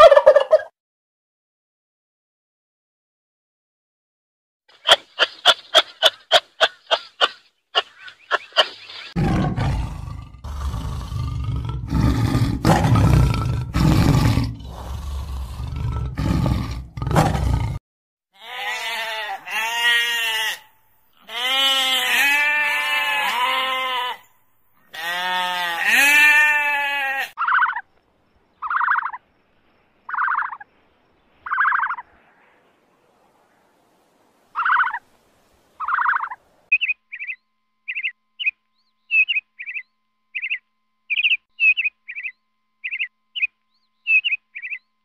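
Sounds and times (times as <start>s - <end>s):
kangaroo calls: 4.8s - 9.2s, 18.4s - 27.9s, 30.1s - 30.6s, 35.8s - 39.8s
tiger growling roar: 9.2s - 17.8s
sheep bleating: 18.4s - 24.3s, 24.9s - 27.4s.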